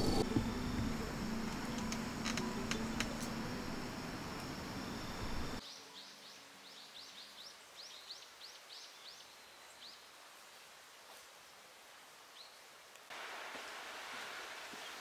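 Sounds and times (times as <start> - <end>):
steady noise: 0.0 - 5.6.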